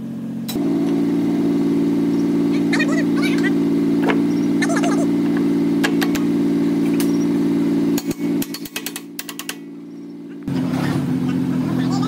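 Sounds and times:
engine running: 0.0s - 12.0s
sharp metallic clicks: 8.0s - 9.7s.

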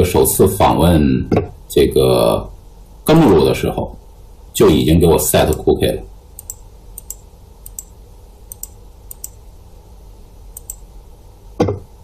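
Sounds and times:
faint low hum: 0.0s - 12.0s
computer mouse clicks: 6.4s - 7.9s, 8.5s - 9.4s, 10.5s - 10.9s.

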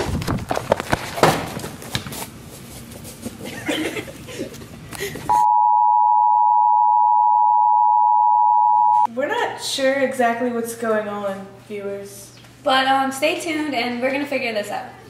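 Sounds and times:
steady test tone beep: 5.3s - 9.1s.

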